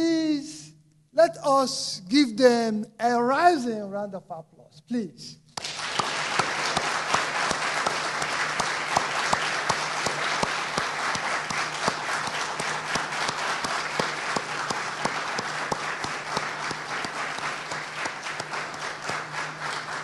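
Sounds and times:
crowd clapping: 5.6 - 20.0.

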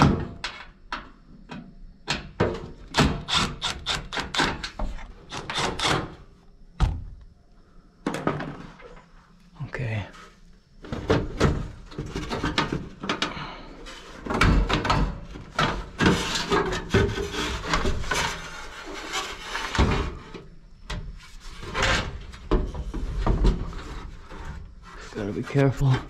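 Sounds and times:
metal knocks and clunks: 10.8 - 13.4, 14.2 - 18.4.

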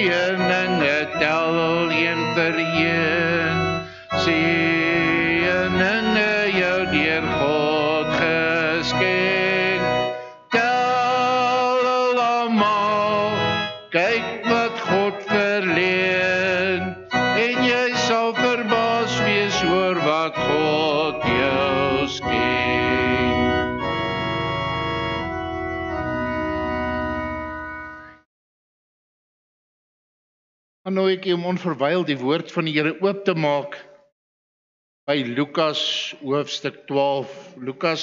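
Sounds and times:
instrumental accompaniment: 0.0 - 28.3
choir singing a hymn: 18.4 - 23.6.

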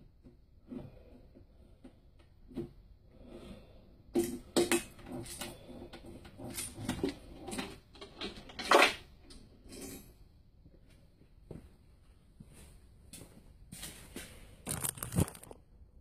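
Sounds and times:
wrist roller knocking and rattling: 4.1 - 9.9.

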